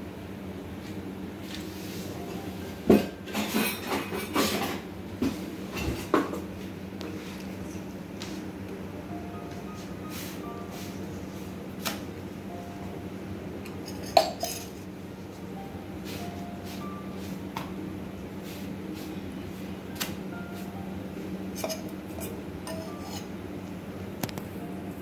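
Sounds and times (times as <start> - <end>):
steady low hum: 0.0 - 25.0
metal pots and utensils clinking: 3.0 - 4.8, 13.8 - 14.8, 21.6 - 23.3.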